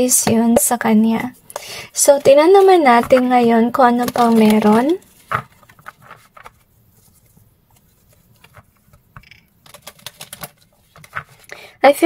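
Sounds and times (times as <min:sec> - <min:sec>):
cards being shuffled: 0:02.1 - 0:11.5.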